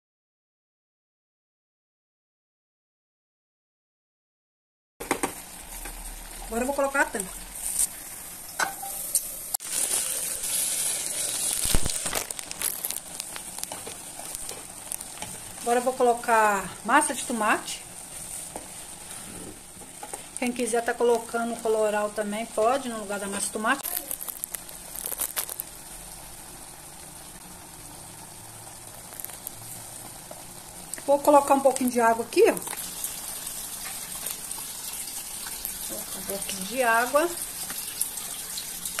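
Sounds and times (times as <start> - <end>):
food sizzling in a pot: 5.0 - 39.0
plastic sachet crinkling: 9.6 - 15.7, 23.7 - 25.7, 29.0 - 29.6
wooden spatula scraping a pot: 12.3 - 16.0, 18.0 - 20.3.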